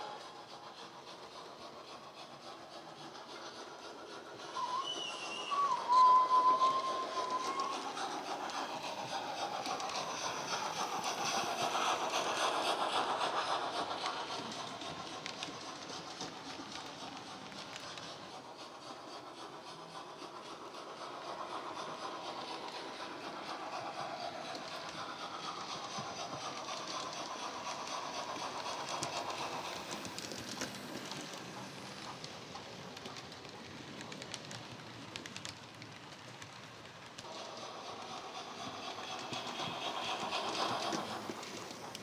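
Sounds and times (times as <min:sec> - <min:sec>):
model train steam exhaust beats: 0:00.0 - 0:42.0
model train wheels rolling: 0:00.0 - 0:42.0.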